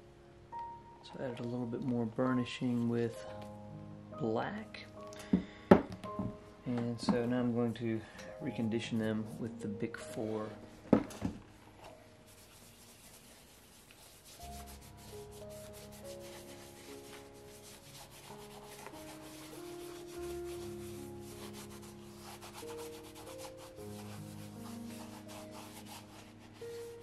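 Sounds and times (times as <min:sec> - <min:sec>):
soft background music: 0:00.0 - 0:27.0
rubbing on leather shoe: 0:12.3 - 0:27.0.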